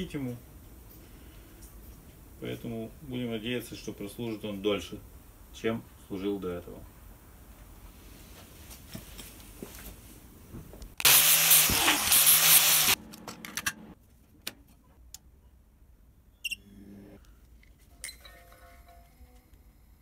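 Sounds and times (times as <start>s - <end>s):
grinder grinding metal: 11.0s - 13.0s.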